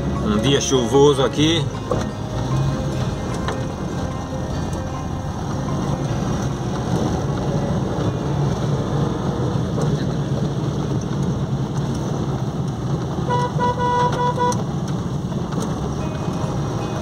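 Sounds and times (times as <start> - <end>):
car driving on wet road: 0.0 - 17.0
car horn short beeps: 13.3 - 14.6.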